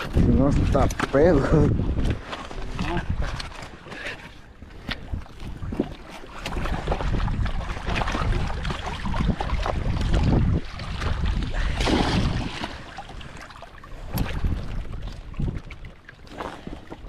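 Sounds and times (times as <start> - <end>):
wind rumbling on microphone: 0.0 - 17.0
fish thrashing in water: 5.0 - 17.0.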